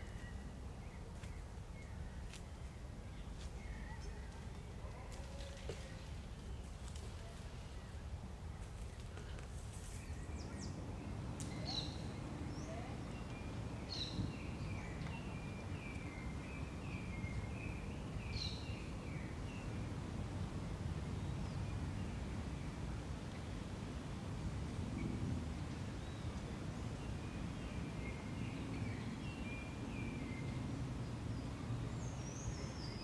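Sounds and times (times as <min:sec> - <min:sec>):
birds calling: 0:10.0 - 0:20.1
steady low rumble: 0:10.0 - 0:32.8.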